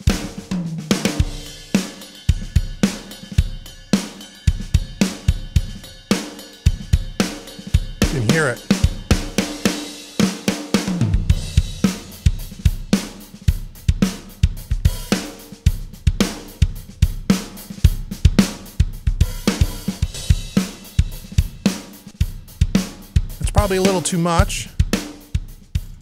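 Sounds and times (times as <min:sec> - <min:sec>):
drum kit playing steady beat: 0:00.0 - 0:26.0.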